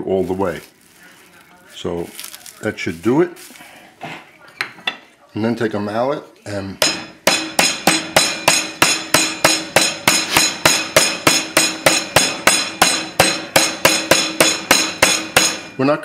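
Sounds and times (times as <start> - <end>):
meat mallet pounding on board: 6.8 - 15.8.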